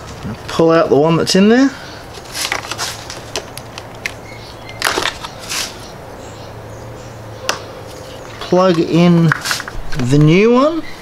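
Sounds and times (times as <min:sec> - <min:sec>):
short rustling scrapes: 0:02.2 - 0:03.3, 0:05.0 - 0:05.9, 0:09.4 - 0:09.8.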